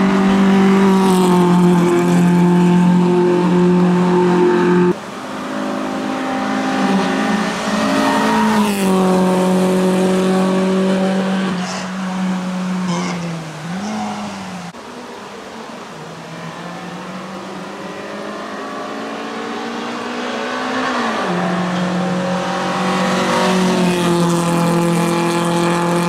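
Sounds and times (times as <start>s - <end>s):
car engine revving hard: 5.8s - 14.7s, 17.7s - 26.0s.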